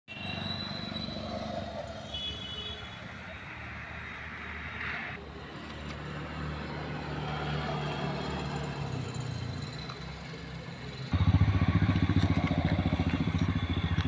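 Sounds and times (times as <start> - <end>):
outdoor background noise: 0.1 - 14.0
low engine hum: 11.1 - 14.0.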